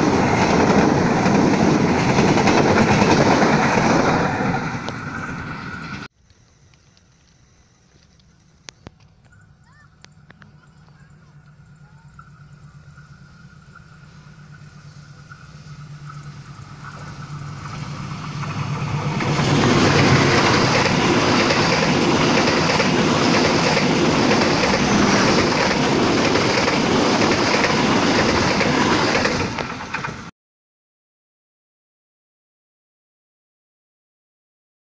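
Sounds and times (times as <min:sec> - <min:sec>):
train coaches rumbling: 0:00.0 - 0:06.1, 0:09.3 - 0:30.3
locomotive engine hum: 0:00.0 - 0:30.3
wheels clattering over rail joints: 0:13.4 - 0:30.3.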